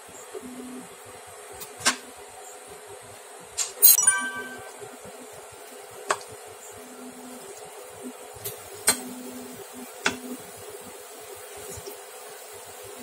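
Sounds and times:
liquid boiling in a frying pan: 5.7 - 13.0.

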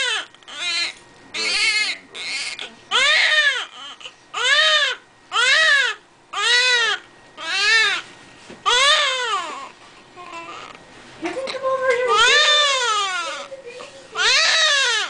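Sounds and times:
newborn baby crying: 0.0 - 10.8, 11.4 - 15.0.

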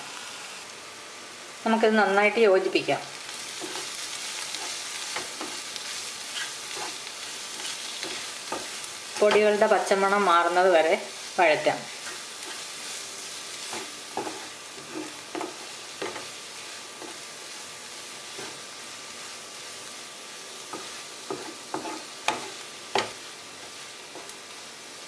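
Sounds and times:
masala sizzling in a pan: 0.0 - 25.0
spatula tapping and scraping pan: 6.4 - 9.5, 13.7 - 16.4, 17.0 - 17.3, 20.7 - 23.2.

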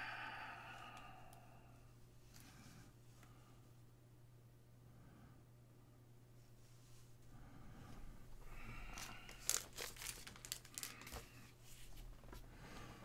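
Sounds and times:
low electrical hum: 0.0 - 13.0
plastic crinkling and rustling: 8.8 - 12.4.

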